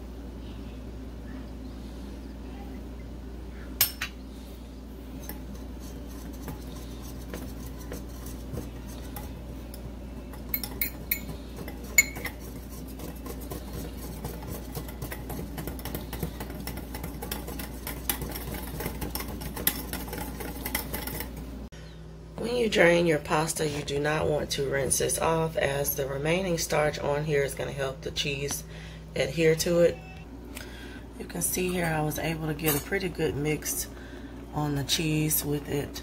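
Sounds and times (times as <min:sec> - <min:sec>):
whisk ticking against bowl: 0:05.3 - 0:21.4
utensils clinking on bowl: 0:06.3 - 0:12.8, 0:13.8 - 0:21.4.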